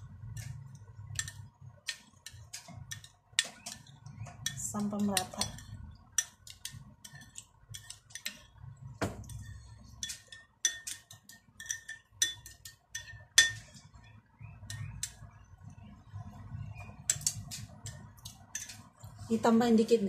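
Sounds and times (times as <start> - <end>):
spoon clinking in bowl: 0.4 - 8.6, 9.2 - 13.7.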